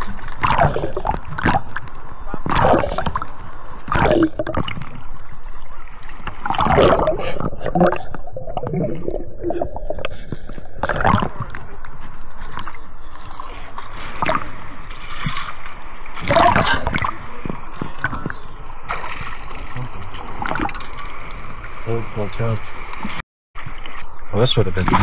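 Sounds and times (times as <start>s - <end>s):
water sloshing and gurgling: 0.0s - 22.0s.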